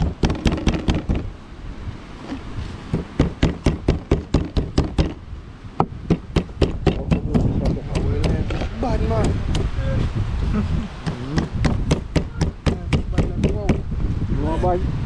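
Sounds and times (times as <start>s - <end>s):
knife chopping on wooden board: 0.0s - 1.3s, 2.9s - 5.2s, 5.8s - 9.7s, 11.0s - 13.8s.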